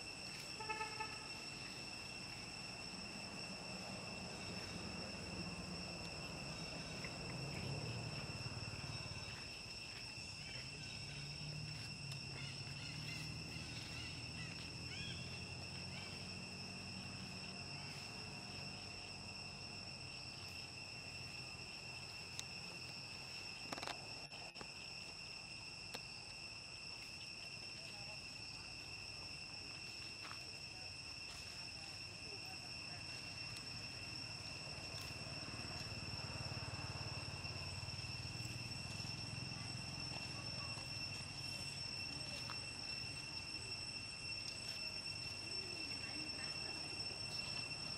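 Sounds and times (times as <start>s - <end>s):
insects droning: 0.0s - 47.9s.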